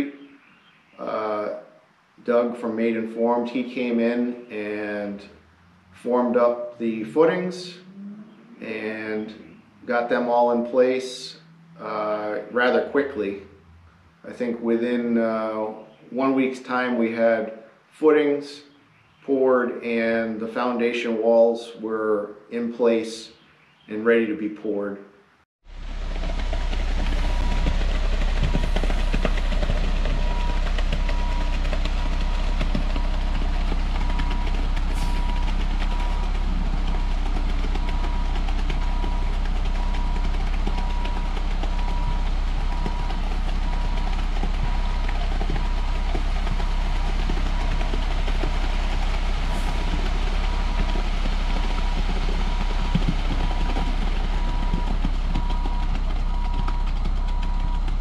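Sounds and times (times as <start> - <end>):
truck engine rumbling: 0.0 - 21.3, 25.6 - 58.0
back-up alarm beeping: 28.4 - 46.8, 49.6 - 58.0.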